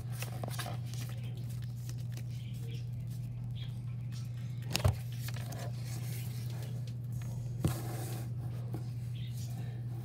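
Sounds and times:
cards and wrappers rustling: 0:00.0 - 0:03.6, 0:04.2 - 0:07.1
steady low hum: 0:00.0 - 0:10.0.

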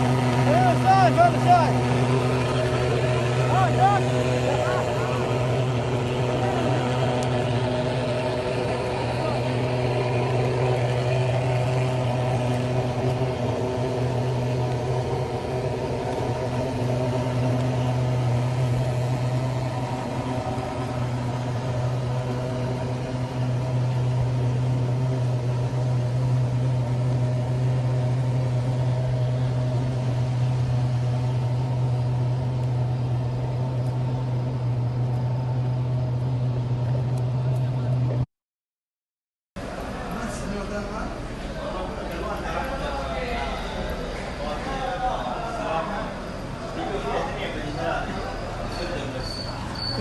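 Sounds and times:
low machine hum: 0:00.0 - 0:38.2.

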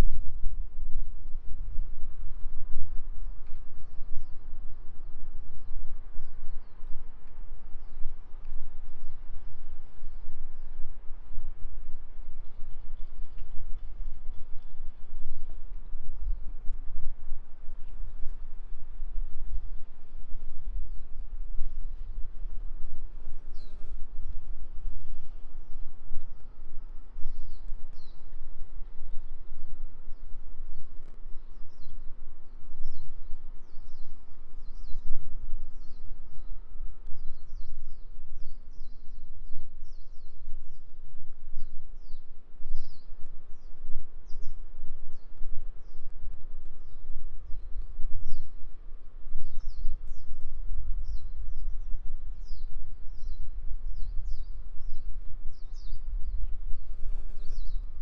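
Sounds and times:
low outdoor rumble: 0:00.0 - 0:58.0
birds chirping: 0:55.6 - 0:57.9.

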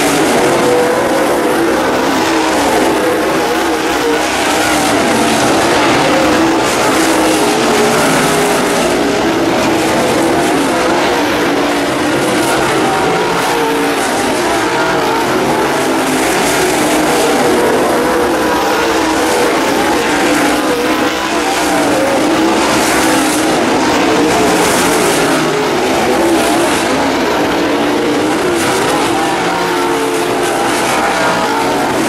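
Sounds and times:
race car engines roaring: 0:00.0 - 0:32.0.

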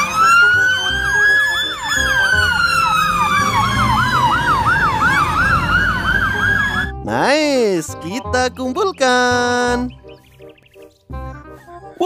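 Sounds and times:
fast siren yelp: 0:00.0 - 0:06.9
fire engine siren wail: 0:00.0 - 0:06.9
low engine rumble: 0:01.8 - 0:06.9.

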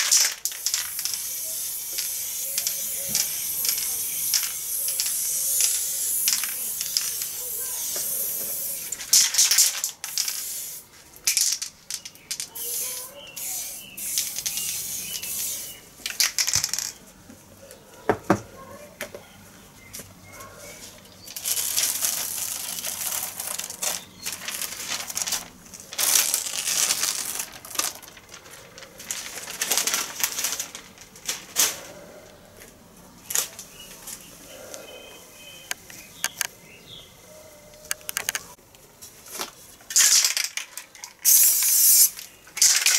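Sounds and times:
spray paint hissing: 0:00.0 - 0:16.8, 0:21.4 - 0:25.3, 0:41.2 - 0:42.9
paper stencil peeled off crinkling: 0:21.4 - 0:31.8.

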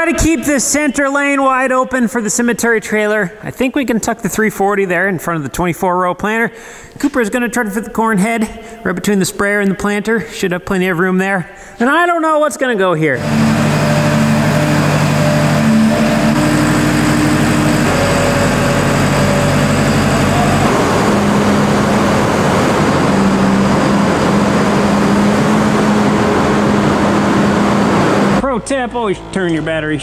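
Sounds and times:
tractor diesel engine running: 0:13.2 - 0:30.0.

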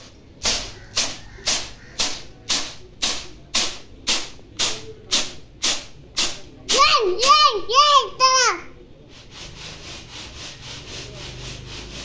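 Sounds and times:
grain swishing on a plastic tray: 0:09.0 - 0:12.0.

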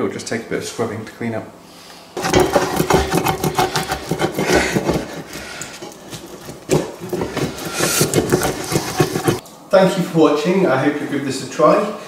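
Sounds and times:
wooden spatula scraping a pot: 0:02.2 - 0:09.4.

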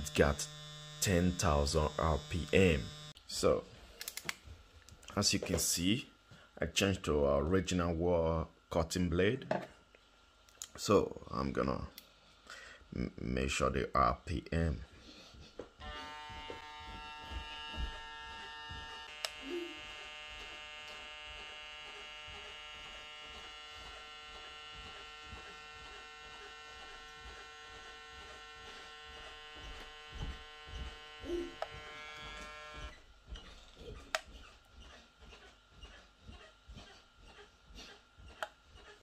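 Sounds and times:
hair clipper motor buzzing: 0:00.0 - 0:03.2, 0:15.8 - 0:33.0.

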